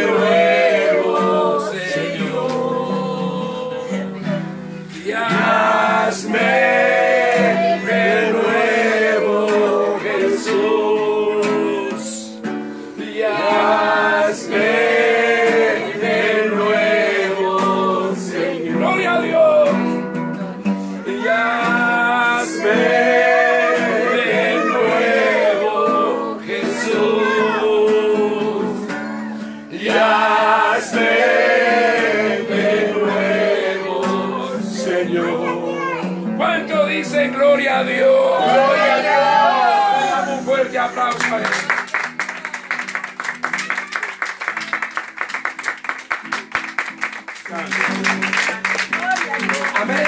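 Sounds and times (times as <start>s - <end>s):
man's voice leading singing: 0.0s - 4.2s, 4.9s - 12.4s, 13.0s - 20.1s, 21.0s - 29.0s, 29.7s - 38.9s
congregation singing: 0.0s - 20.2s, 21.0s - 41.6s
acoustic guitar strumming: 0.0s - 50.0s.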